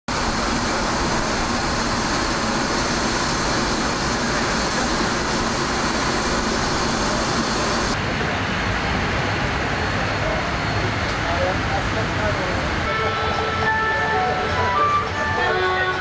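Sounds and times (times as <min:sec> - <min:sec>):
thin high whine: 0:00.1 - 0:08.0
jet turbine rushing: 0:00.1 - 0:11.1.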